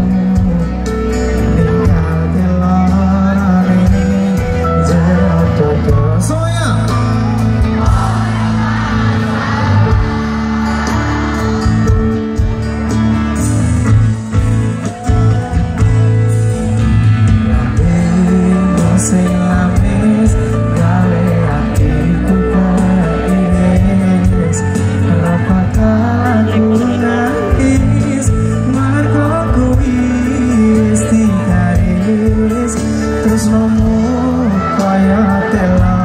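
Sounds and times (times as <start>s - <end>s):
heavy bass line: 0.0s - 36.0s
live band with singing: 0.0s - 36.0s.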